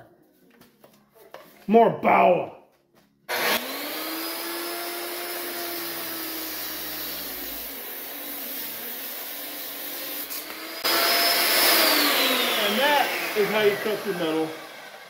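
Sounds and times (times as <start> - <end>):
angle grinder whining: 3.3 - 15.0.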